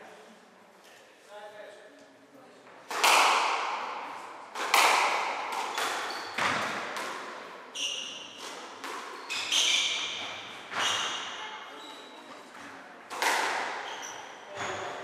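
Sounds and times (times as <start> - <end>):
squash ball hitting walls: 2.8 - 11.4, 13.1 - 13.9
shoe squeaks on wooden floor: 9.1 - 12.5, 13.8 - 15.0.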